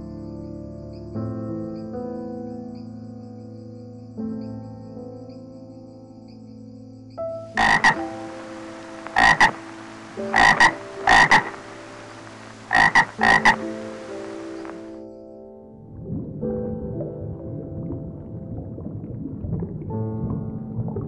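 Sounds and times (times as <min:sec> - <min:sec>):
soft background music: 0:00.0 - 0:21.0
frog croaking: 0:07.5 - 0:15.0.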